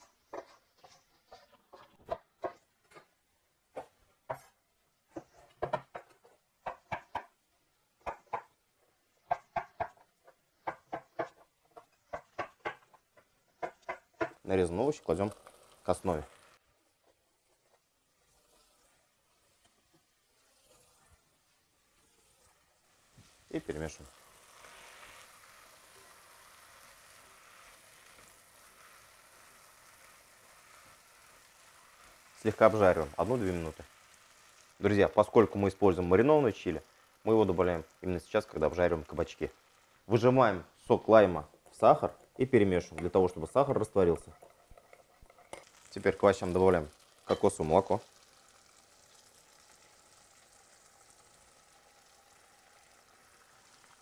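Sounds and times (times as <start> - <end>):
vegetables sizzling in oil: 0.0 - 54.0.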